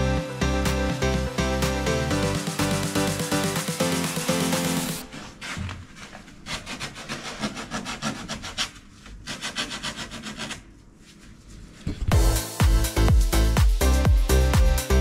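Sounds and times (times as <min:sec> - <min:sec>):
electronic music: 0:00.0 - 0:05.0, 0:12.1 - 0:15.0
sandpaper rubbing on wood: 0:05.2 - 0:11.8.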